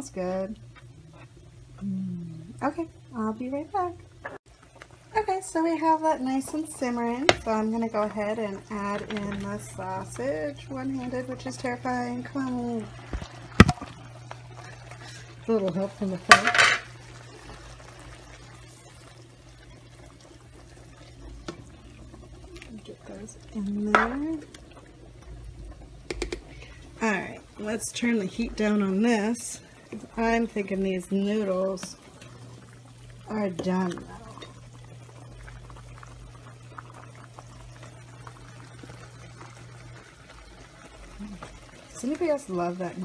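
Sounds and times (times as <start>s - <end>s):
steady low hum: 0.0s - 4.3s
sauce bubbling: 0.0s - 43.0s
water boiling with pops: 0.0s - 43.0s.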